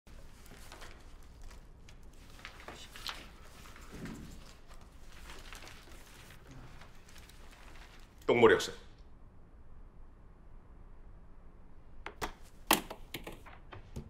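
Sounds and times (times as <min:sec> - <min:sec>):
faint clicks and rustles: 0:00.1 - 0:08.4.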